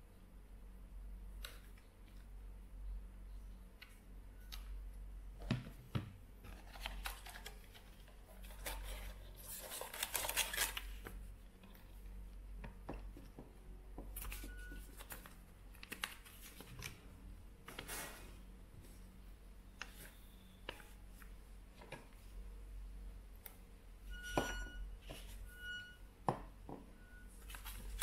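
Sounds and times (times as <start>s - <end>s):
paper rustling: 6.4s - 11.1s, 27.4s - 28.0s
plastic packaging crackling: 6.6s - 11.0s.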